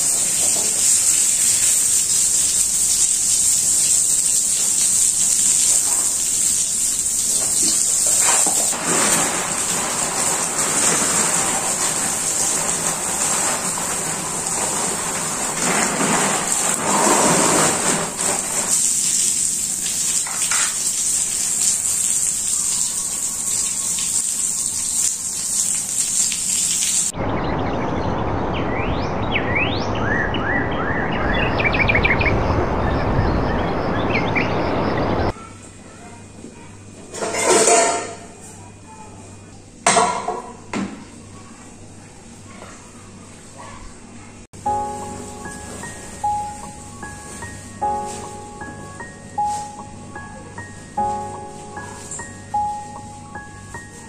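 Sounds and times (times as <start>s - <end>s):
hose water spraying on tiles: 0.0s - 27.1s, 44.6s - 49.8s, 50.7s - 52.7s
birds chirping: 27.1s - 35.3s.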